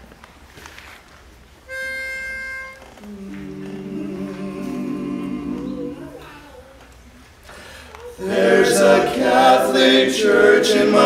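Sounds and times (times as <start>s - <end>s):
vocal quartet humming chord: 3.0s - 6.6s, 8.2s - 11.0s.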